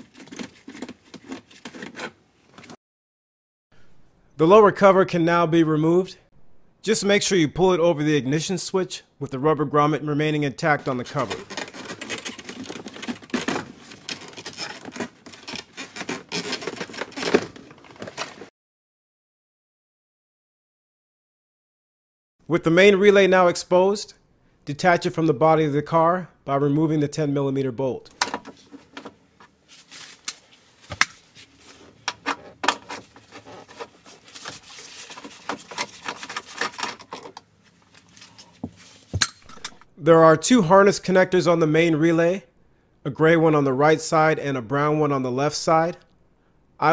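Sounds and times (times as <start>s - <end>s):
plastic trim scraping and rubbing: 0.0s - 2.8s, 10.7s - 18.5s, 31.5s - 39.8s.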